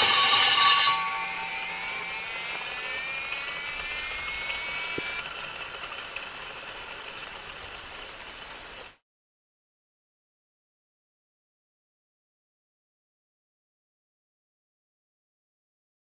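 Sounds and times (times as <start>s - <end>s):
core drill motor whining: 0.0s - 6.0s.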